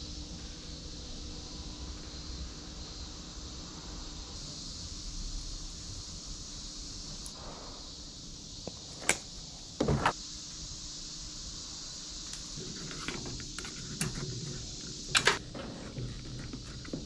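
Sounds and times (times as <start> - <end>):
steady hiss: 0.0 - 17.0
rustling wires and connectors: 12.3 - 17.0.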